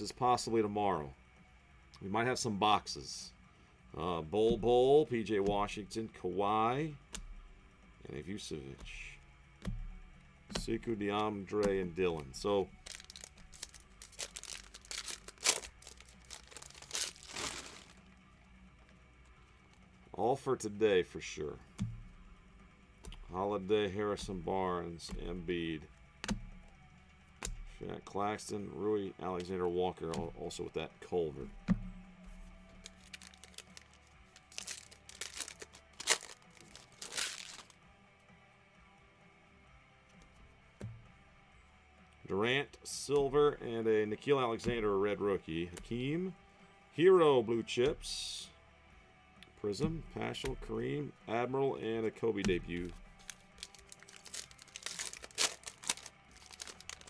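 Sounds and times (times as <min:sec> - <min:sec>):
foil wrapper crinkling and tearing: 0:12.4 - 0:18.0, 0:32.8 - 0:37.8, 0:52.8 - 0:57.0.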